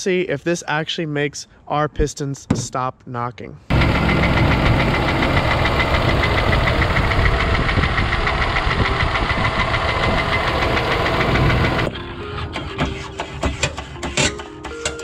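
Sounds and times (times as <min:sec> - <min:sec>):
engine with rapid knocking: 0:03.7 - 0:11.9.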